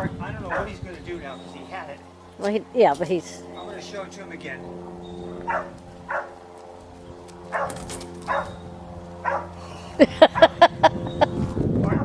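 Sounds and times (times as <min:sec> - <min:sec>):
dog barking: 0:00.5 - 0:00.7, 0:05.5 - 0:06.4, 0:07.5 - 0:08.6, 0:09.2 - 0:09.5.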